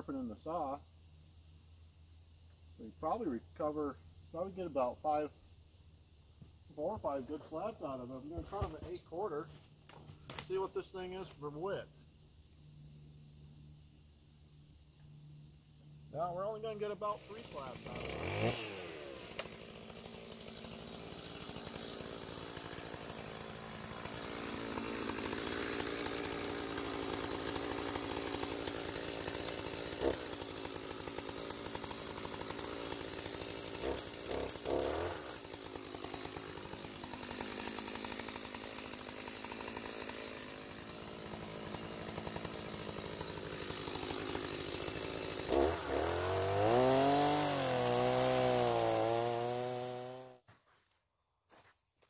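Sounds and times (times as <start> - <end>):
chainsaw idling: 6.7 - 11.9, 15.4 - 50.4
chainsaw throttle blips: 17.0 - 50.4.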